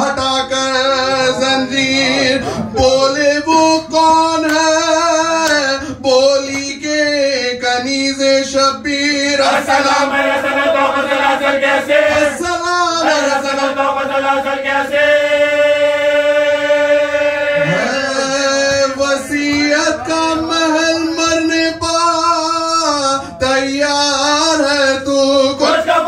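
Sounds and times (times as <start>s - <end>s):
men chanting a mournful lament: 0.0s - 26.0s.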